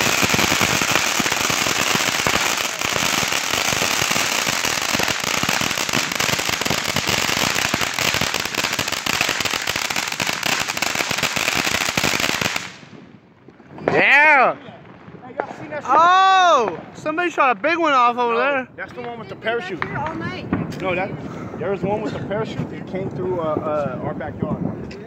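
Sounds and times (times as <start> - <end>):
firework hissing: 0.0 - 12.9
firework pops and crackles: 0.0 - 17.6, 18.8 - 25.0.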